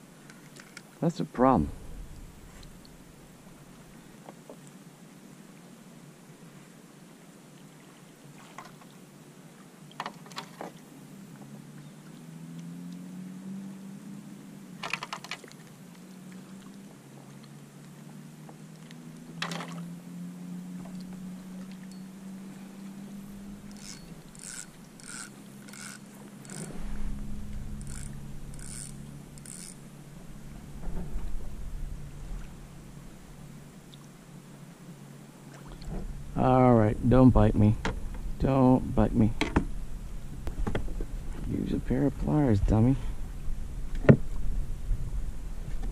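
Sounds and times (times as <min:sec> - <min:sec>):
low steady hum: 0:00.0 - 0:45.9
low rumble: 0:01.4 - 0:04.1, 0:26.3 - 0:45.9.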